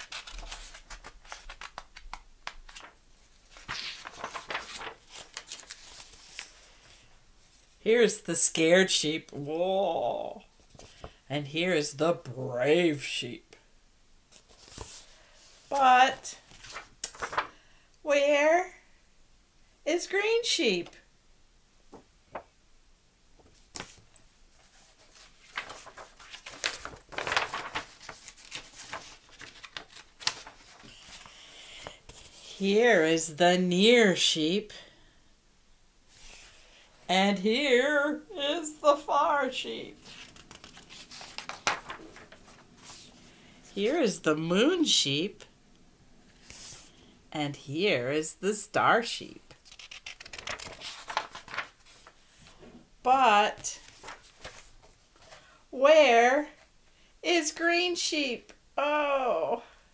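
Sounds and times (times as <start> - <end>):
paper pages rustling: 0.0 - 7.1, 10.6 - 11.2, 14.3 - 17.6, 23.4 - 32.6, 38.5 - 43.9, 46.3 - 47.0, 49.5 - 52.7, 53.4 - 55.6.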